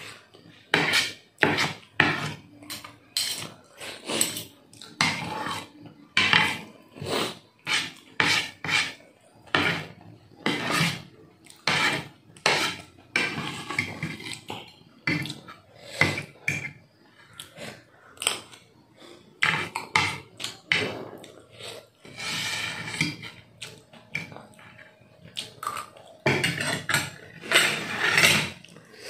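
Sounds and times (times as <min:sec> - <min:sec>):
cutlery clinking on a plate: 0:00.8 - 0:03.6.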